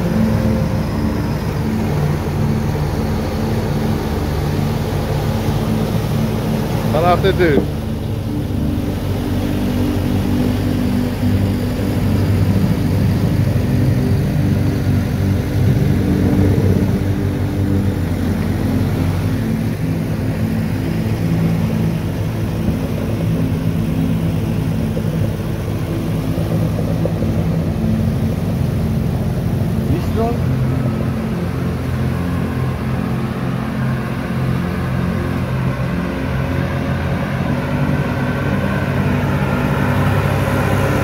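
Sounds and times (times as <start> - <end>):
motorboat engine running: 0.0 - 41.0.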